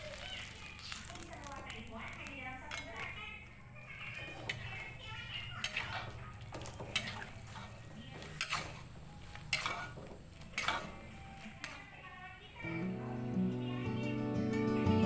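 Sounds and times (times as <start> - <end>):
metal spatula scraping a wok: 4.0 - 11.9.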